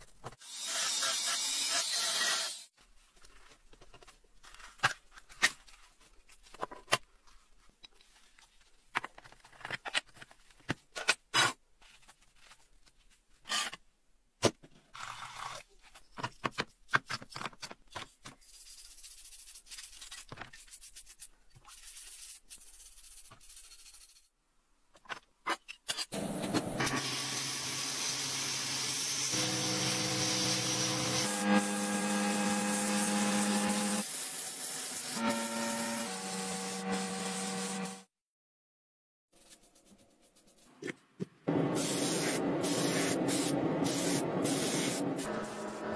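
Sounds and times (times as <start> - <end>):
sandblasting gun hissing: 26.8 - 38.0, 41.5 - 45.8.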